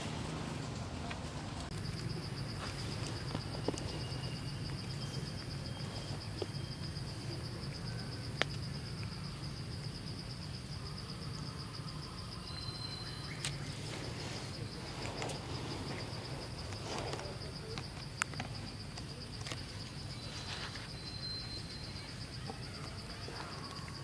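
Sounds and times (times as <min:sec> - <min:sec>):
insect trill: 0:01.7 - 0:24.0.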